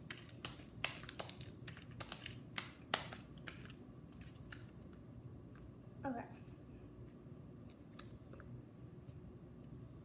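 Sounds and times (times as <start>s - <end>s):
slime clicking and popping: 0.0s - 3.8s.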